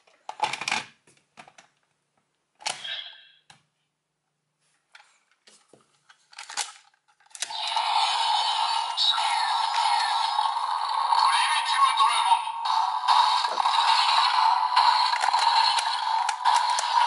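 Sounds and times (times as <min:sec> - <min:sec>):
plastic toy clicks and knocks: 0:06.3 - 0:07.5, 0:14.8 - 0:17.0
toy sound effect: 0:07.4 - 0:17.0
loud electronic sound effect: 0:07.5 - 0:17.0.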